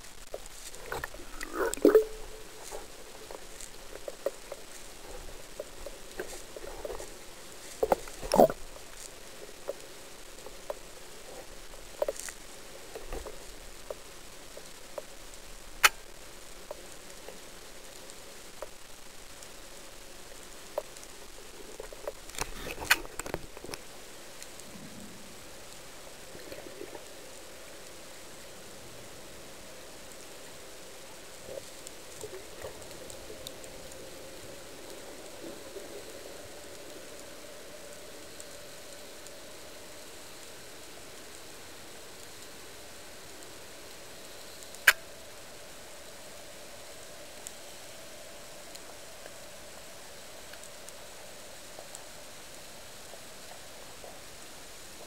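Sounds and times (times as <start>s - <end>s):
underwater hiss: 0.0s - 18.5s
short underwater gurgle: 0.9s - 2.6s.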